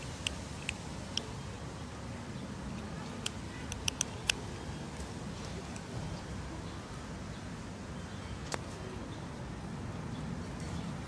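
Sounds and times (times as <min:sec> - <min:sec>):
low outdoor rumble: 0:00.0 - 0:11.0.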